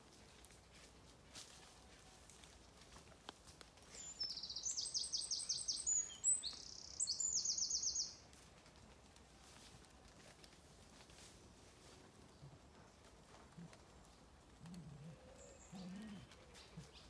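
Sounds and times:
songbird singing: 3.9 - 8.3, 15.0 - 17.0.

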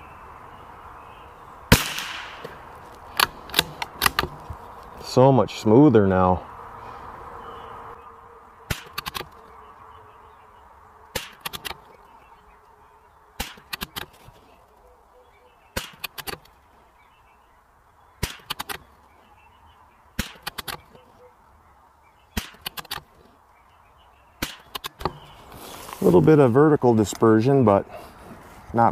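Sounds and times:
rifle shots: 1.7 - 2.6, 8.7 - 9.2, 11.1 - 11.7, 13.4 - 14.0.

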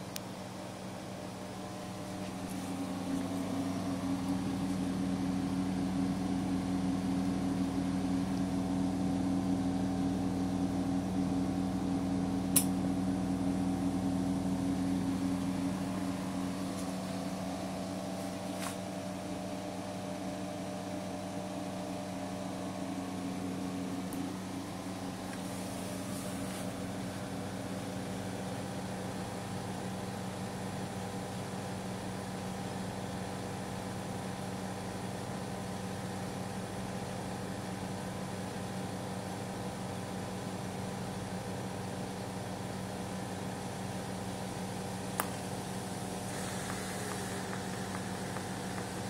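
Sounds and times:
welding machine humming: 1.2 - 29.4, 44.2 - 49.0
sharp click: 12.5 - 12.8.

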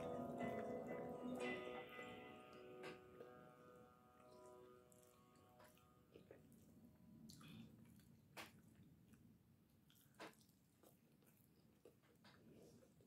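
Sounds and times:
wet squishing of eating by hand: 4.2 - 13.0.

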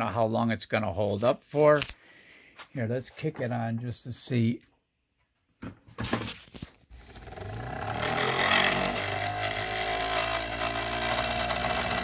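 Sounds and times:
motor rotor humming: 7.0 - 12.0.

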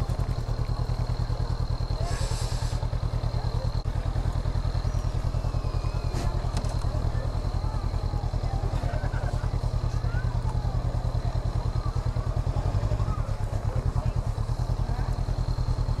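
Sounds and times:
motorcycle engine idling low: 0.0 - 16.0
brief hiss: 2.0 - 2.8.

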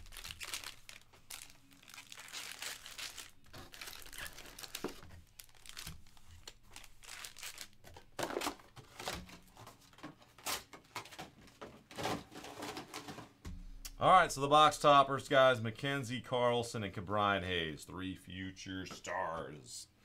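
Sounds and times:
foil wrappers crinkling: 0.0 - 13.2.

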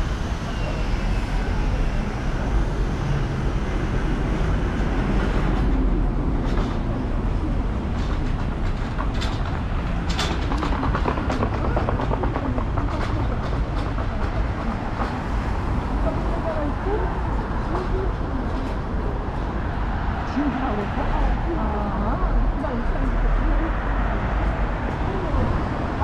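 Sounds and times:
passing vehicle rumble: 0.0 - 26.0
sharp clicks and clatter: 8.0 - 15.2.

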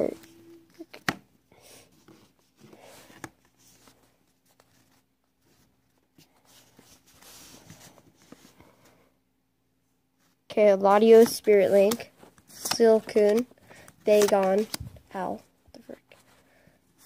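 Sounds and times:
trading cards rustling and tapping: 10.8 - 15.9.

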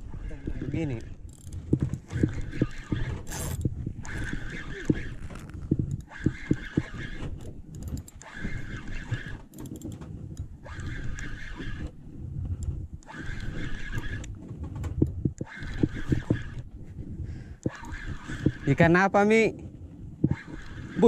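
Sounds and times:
fishing reel gears whining: 0.2 - 12.0, 13.0 - 14.4, 15.3 - 16.7, 17.6 - 19.1, 20.3 - 21.0
sharp clicks: 1.0 - 16.7.

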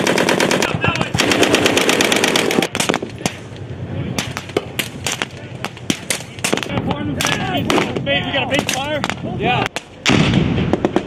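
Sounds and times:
machine gun burst: 0.0 - 2.9.

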